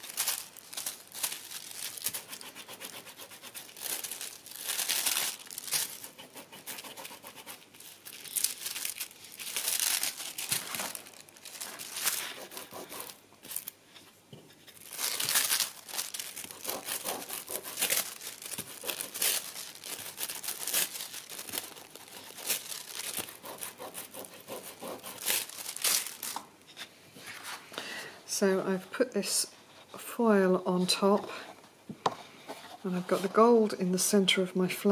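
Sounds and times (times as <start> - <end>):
metallic foil crinkling: 0.0 - 14.0, 14.6 - 26.4.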